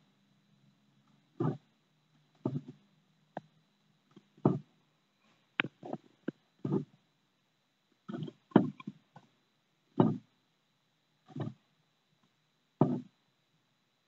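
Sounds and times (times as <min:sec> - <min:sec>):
tortoises mating sounds: 0:01.0 - 0:07.1, 0:08.0 - 0:10.4, 0:11.2 - 0:11.7, 0:12.8 - 0:13.2.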